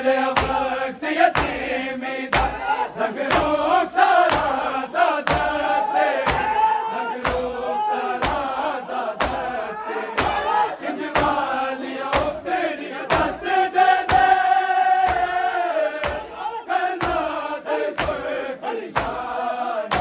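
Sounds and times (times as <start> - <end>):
men chanting a lament: 0.0 - 20.0
hand strikes on chest: 2.3 - 2.6, 5.2 - 5.6, 6.2 - 6.6, 8.2 - 8.5, 9.2 - 9.5, 15.0 - 15.4, 16.0 - 16.3.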